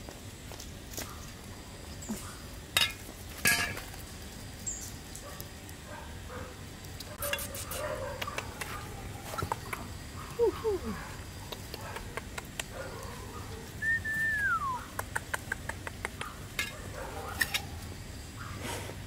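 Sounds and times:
soil scraping and rustling: 0.0s - 5.8s, 6.9s - 10.0s, 16.6s - 19.0s
trowel working soil in plastic pot: 7.0s - 9.8s, 16.6s - 17.7s.

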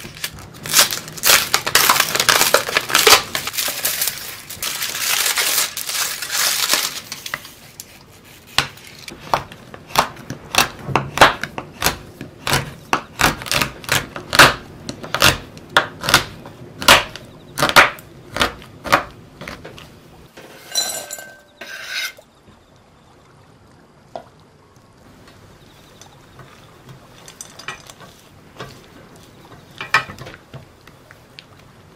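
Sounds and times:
cookie crumbs crushing in bowl: 0.0s - 7.5s
spatula clinking against glass bowl: 20.5s - 22.2s.

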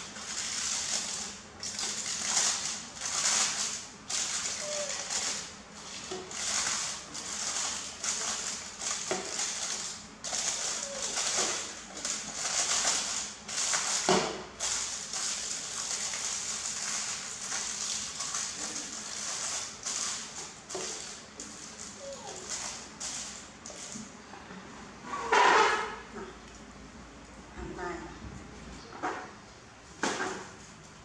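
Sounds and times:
aluminium foil crinkling: 1.8s - 23.9s.

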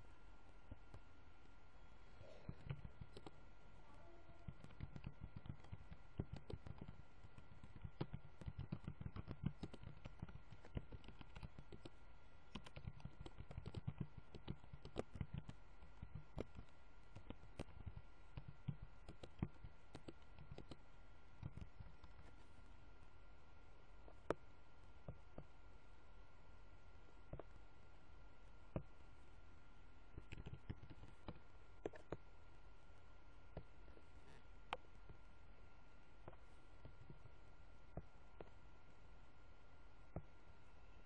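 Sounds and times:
faint steady hum: 0.0s - 41.0s
typing on computer keyboard: 4.3s - 20.8s, 30.2s - 32.2s.

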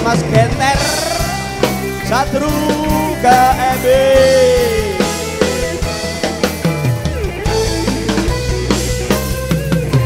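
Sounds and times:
bass line: 0.0s - 10.0s
drums: 0.0s - 10.0s
electric keyboard melody: 0.0s - 10.0s.

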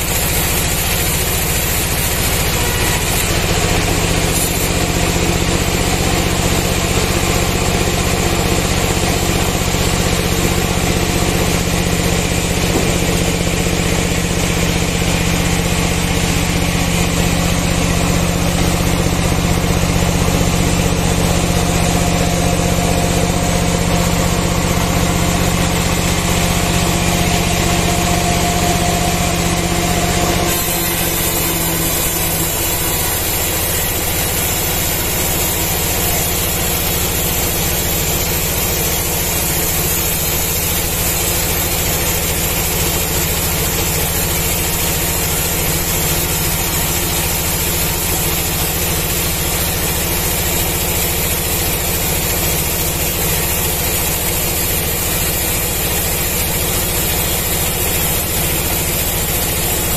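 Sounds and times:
saw blade hissing through wood: 0.0s - 5.5s, 19.7s - 59.9s
sawmill machine hum: 0.0s - 59.9s.

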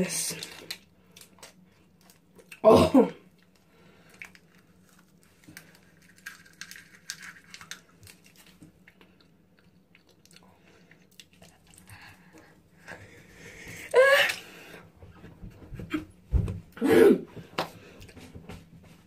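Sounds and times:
plastic wrapper crinkling: 0.1s - 2.6s, 3.4s - 8.8s.

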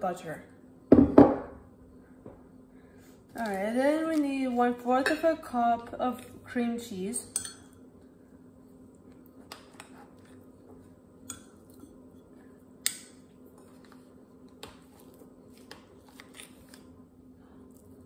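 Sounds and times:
steady low hum: 0.0s - 18.0s
spoon clinking on glass: 7.3s - 7.8s.

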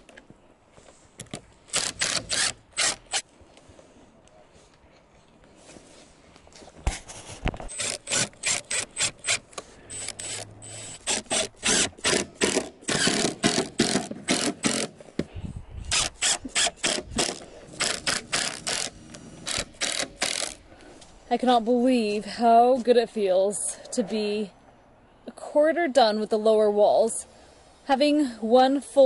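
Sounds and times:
impact driver driving screws: 1.7s - 3.2s, 7.6s - 15.0s, 15.9s - 20.6s.

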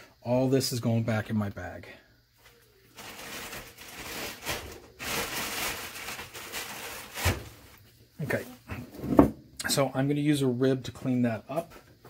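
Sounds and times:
plastic bag rustling: 2.8s - 8.6s.

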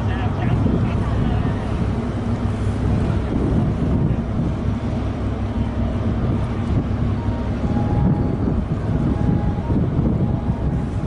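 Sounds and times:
ship engines rumbling: 0.0s - 11.0s
wind buffeting microphone: 0.0s - 11.0s.

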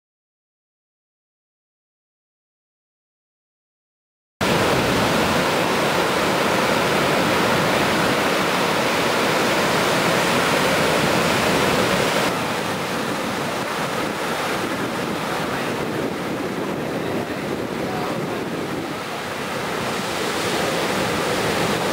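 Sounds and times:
ocean surf breaking: 4.4s - 21.9s
wind buffeting microphone: 4.4s - 21.9s.

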